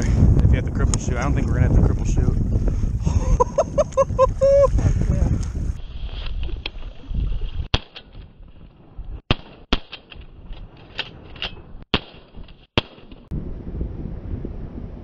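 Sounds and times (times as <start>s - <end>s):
shotgun shots: 9.3s - 10.0s, 11.9s - 13.3s.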